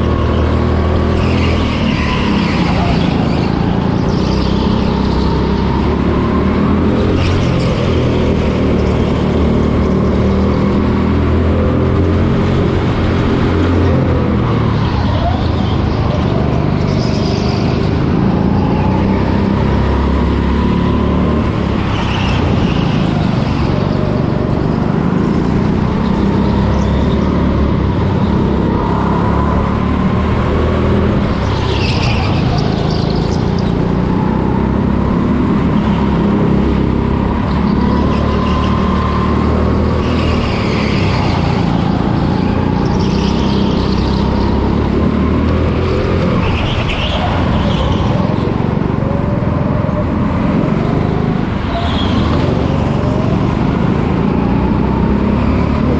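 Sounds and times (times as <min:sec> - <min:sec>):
go-kart motor running: 0:00.0 - 0:55.9.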